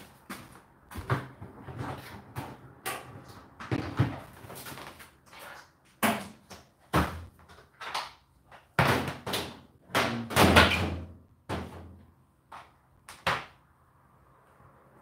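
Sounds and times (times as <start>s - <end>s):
objects knocking and clattering: 1.0s - 5.0s.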